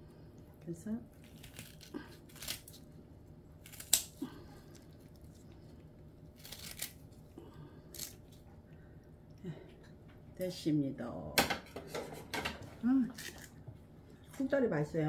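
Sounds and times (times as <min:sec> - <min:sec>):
scissors snipping cabbage: 0:01.2 - 0:02.8, 0:03.6 - 0:04.4, 0:06.4 - 0:07.0, 0:07.9 - 0:08.2.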